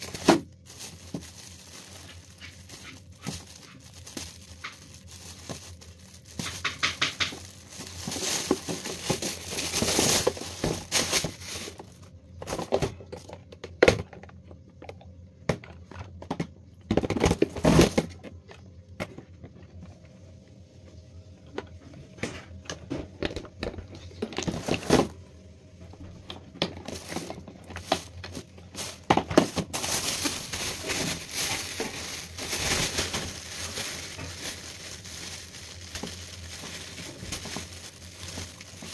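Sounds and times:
plastic bags rustling: 0.0 - 13.4, 17.0 - 18.5, 23.2 - 25.2, 25.9 - 38.9.

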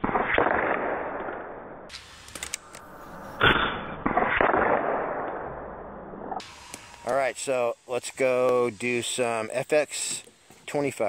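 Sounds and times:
air rifle shots: 0.0 - 2.8, 3.4 - 5.6.

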